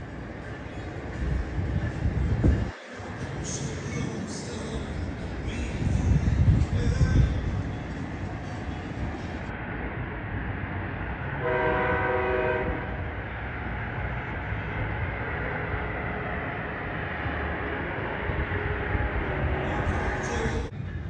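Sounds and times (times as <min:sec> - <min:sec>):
train rumbling past: 0:00.0 - 0:21.0
train horn blast: 0:11.4 - 0:13.1.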